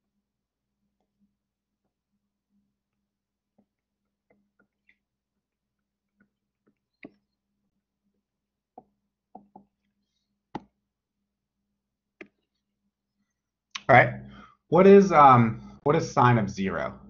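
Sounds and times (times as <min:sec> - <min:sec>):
stylus tapping on tablet: 0:08.8 - 0:09.9.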